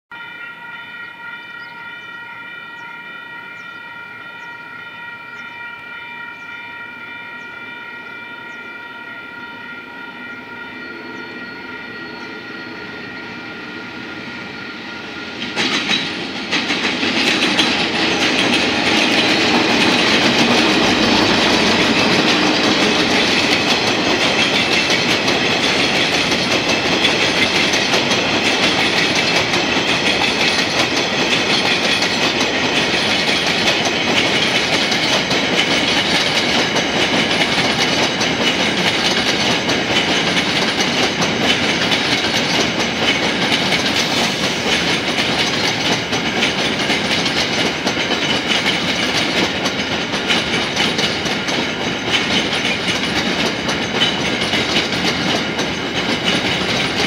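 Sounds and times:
locomotive high tone: 0.1s - 57.0s
train wheels clickety-clack: 12.1s - 57.0s.

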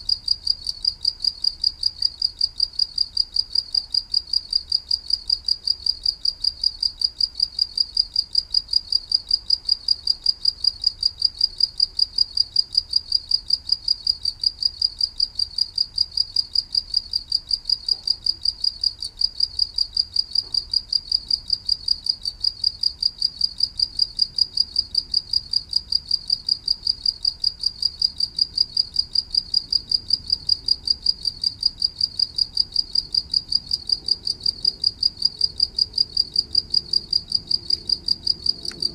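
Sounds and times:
cricket chirping: 0.0s - 38.9s.

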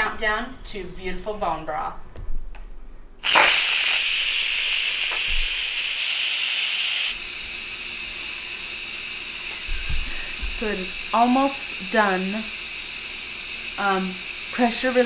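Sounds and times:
pressure cooker steam hissing: 3.2s - 15.0s.

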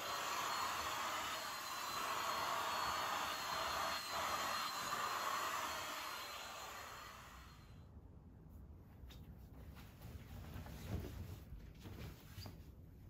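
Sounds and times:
handheld vacuum cleaner whining: 0.0s - 7.7s.

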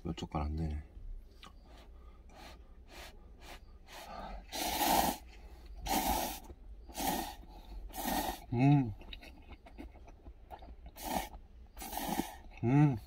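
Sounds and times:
soft chewing and lip-smacking: 0.6s - 4.5s, 5.2s - 12.7s
loud slurps of noodles: 4.5s - 8.5s, 11.0s - 12.4s.

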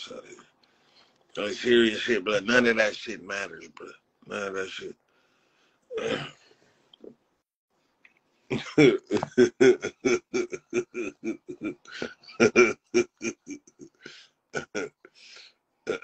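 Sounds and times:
man laughing hard: 8.5s - 14.0s.

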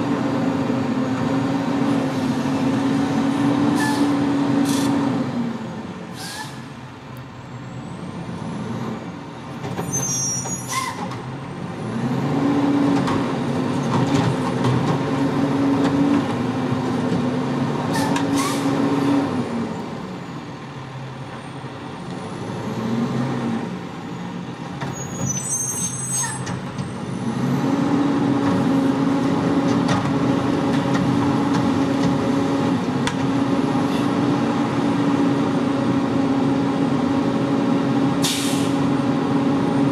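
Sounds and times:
diesel engine revving: 0.0s - 39.9s
brief high squeals: 3.8s - 4.2s, 6.2s - 6.7s, 9.8s - 11.1s, 24.9s - 26.5s
air brake hisses: 6.1s - 6.7s, 17.9s - 18.7s, 38.2s - 38.8s.

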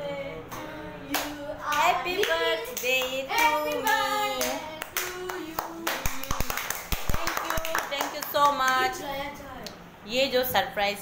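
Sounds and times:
hand claps: 1.1s - 8.9s.

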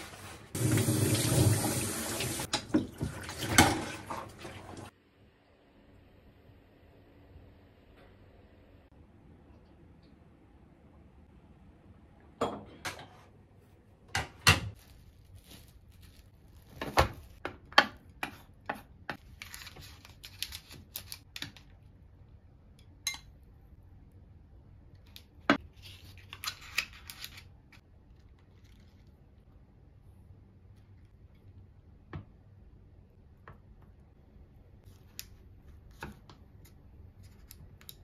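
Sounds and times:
food rustling and scraping: 14.7s - 17.4s.

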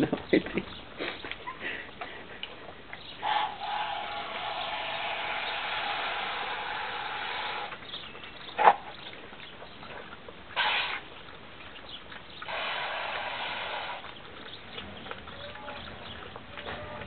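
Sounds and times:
puppies lapping water: 0.0s - 17.0s
noisy bursts: 3.2s - 7.8s, 12.5s - 14.0s.

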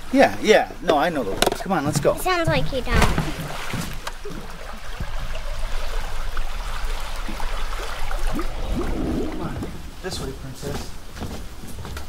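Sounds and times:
stream rippling over rocks: 0.0s - 11.0s.

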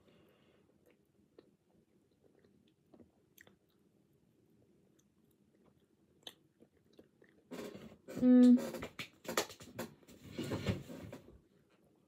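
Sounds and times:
soft chewing: 0.0s - 8.1s.

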